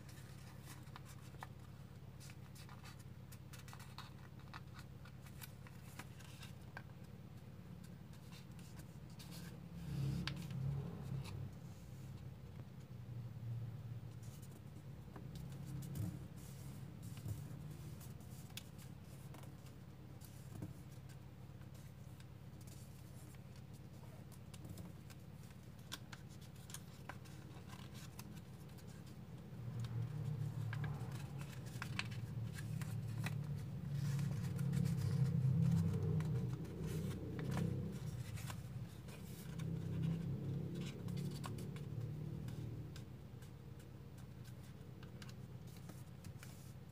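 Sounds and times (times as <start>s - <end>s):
paper crinkling as folded: 16.4s - 29.2s.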